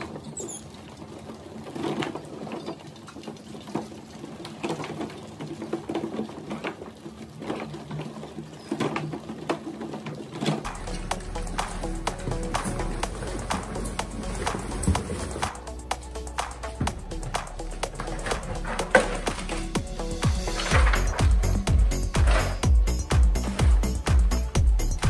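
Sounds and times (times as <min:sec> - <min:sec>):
music: 0:10.7 - 0:25.0.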